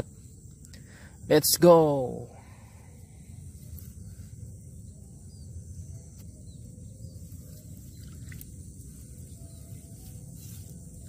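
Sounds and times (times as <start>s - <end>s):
faint bird chirps: 2.2s - 11.0s
steady low rumble: 2.2s - 11.0s.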